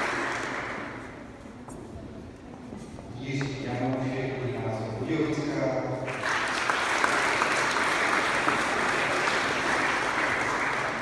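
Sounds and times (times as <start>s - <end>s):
audience applauding: 0.0s - 1.1s, 6.1s - 11.0s.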